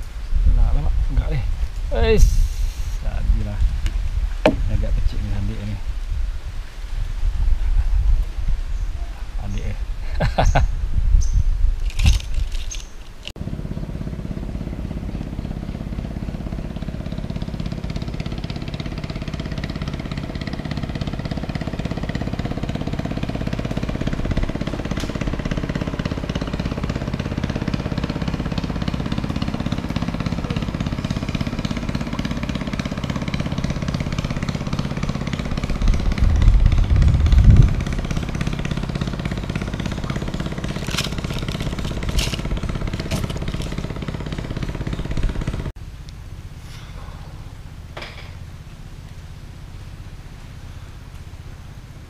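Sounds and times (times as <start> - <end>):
boat engine running: 2.0 - 5.6, 13.4 - 45.8.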